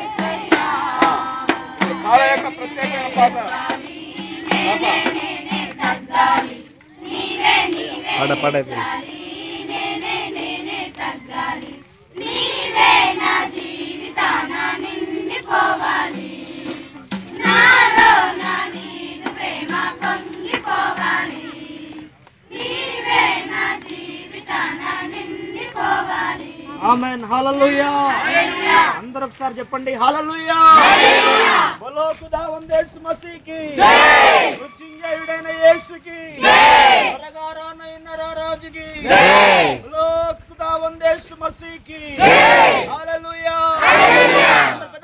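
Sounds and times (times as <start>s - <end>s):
women and children singing a hymn: 0.0s - 27.0s, 28.0s - 29.0s, 33.8s - 37.2s, 43.8s - 44.9s.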